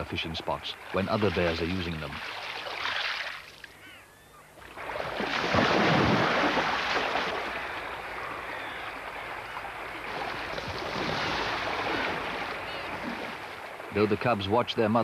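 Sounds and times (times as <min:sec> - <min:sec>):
river water rushing: 0:05.0 - 0:14.2.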